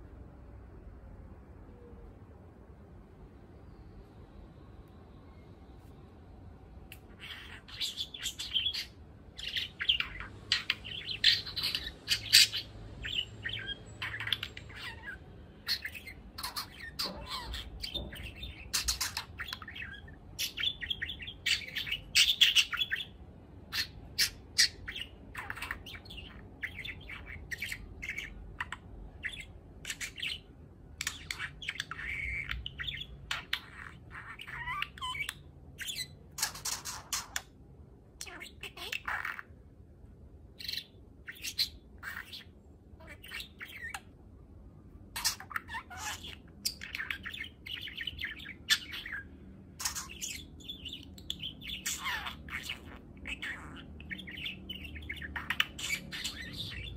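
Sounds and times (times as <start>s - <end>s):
budgerigar warbling: 6.9s - 23.1s, 31.0s - 37.5s, 38.2s - 39.5s, 40.6s - 44.1s, 45.1s - 56.9s.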